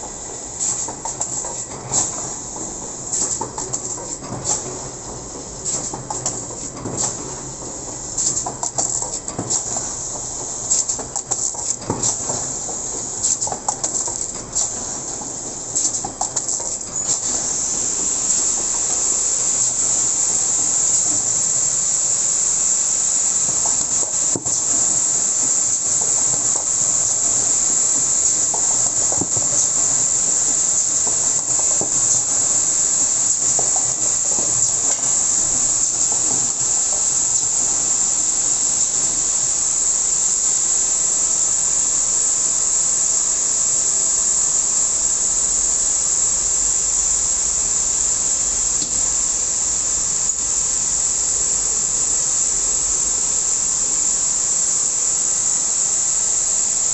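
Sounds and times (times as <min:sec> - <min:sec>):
wrapping machine hissing: 0:00.0 - 0:56.9.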